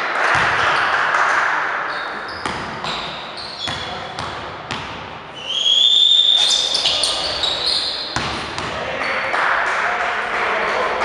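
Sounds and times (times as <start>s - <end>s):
basketball bouncing on hardwood floor: 0.3s - 0.8s, 2.3s - 5.1s, 8.2s - 8.8s.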